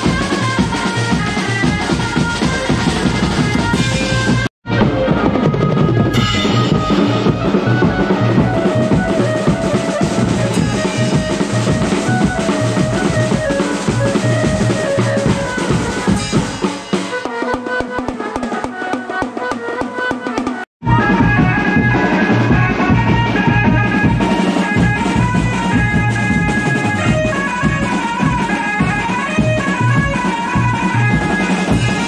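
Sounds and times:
keyboard melody over loudspeakers: 0:00.0 - 0:20.0, 0:20.8 - 0:32.0
drummers playing fast rhythm: 0:00.0 - 0:32.0.

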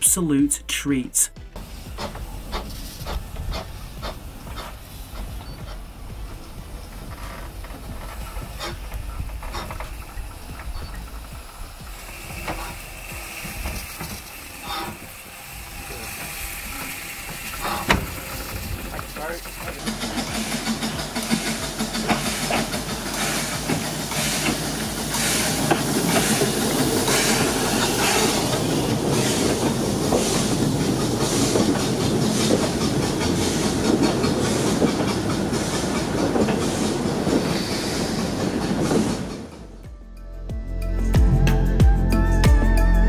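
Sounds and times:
steam train running: 0:00.0 - 0:39.9.

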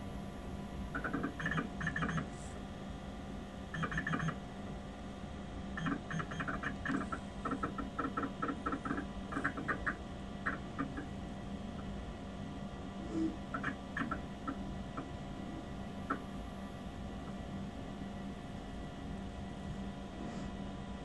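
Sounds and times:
computer humming: 0:00.0 - 0:02.6, 0:03.2 - 0:20.3
hard disk drive ticking: 0:00.9 - 0:02.3, 0:03.7 - 0:04.4, 0:05.8 - 0:11.2, 0:13.5 - 0:15.2.

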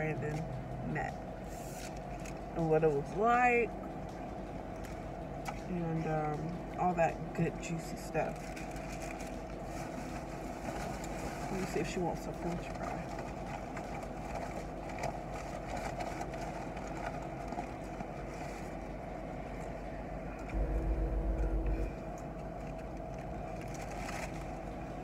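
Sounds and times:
deep engine rumble: 0:00.0 - 0:25.0
paper wrappers crinkling: 0:08.3 - 0:11.8
car idling hum: 0:18.3 - 0:24.9.

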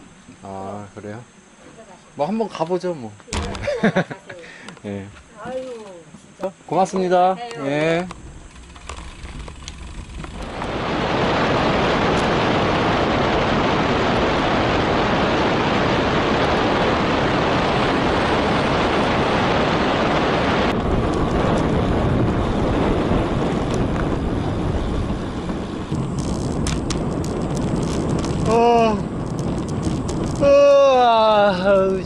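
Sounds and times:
bike tyre hum: 0:03.3 - 0:32.0
wind rushing over microphone: 0:08.1 - 0:32.0.

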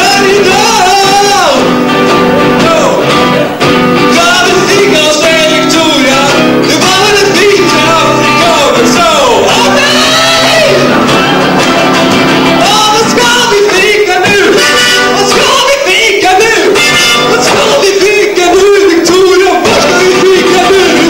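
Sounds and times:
acoustic guitar: 0:00.0 - 0:21.0
man singing blues: 0:00.0 - 0:21.0.

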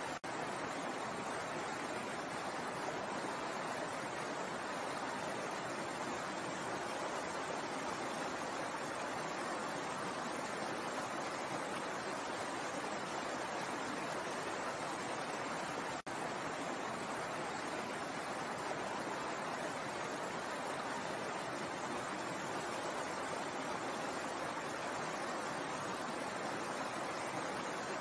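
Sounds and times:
stream running over rocks: 0:00.0 - 0:28.0.

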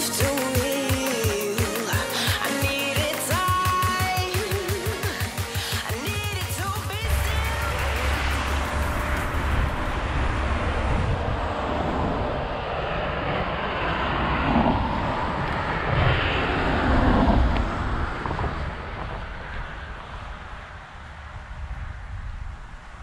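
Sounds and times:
passing engine rumble: 0:04.4 - 0:22.1.

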